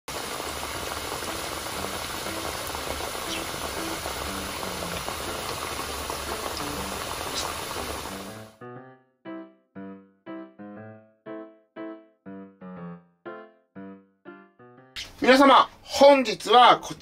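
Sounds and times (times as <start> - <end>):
potatoes frying in hot oil: 0.1 - 8.5.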